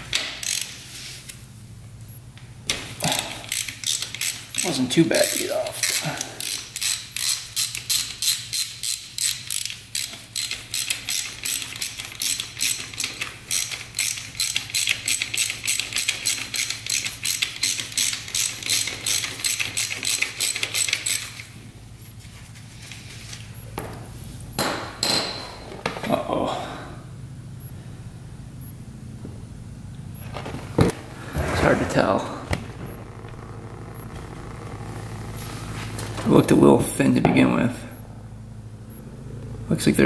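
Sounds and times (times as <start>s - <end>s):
ratchet wrench clicking: 0.2s - 0.8s, 3.0s - 21.5s.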